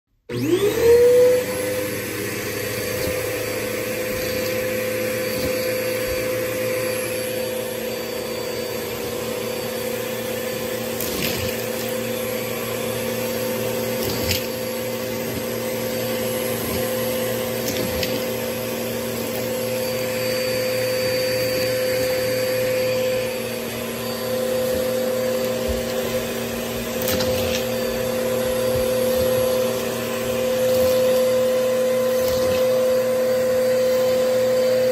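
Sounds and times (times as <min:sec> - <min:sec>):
vacuum cleaner running: 0:00.2 - 0:34.9.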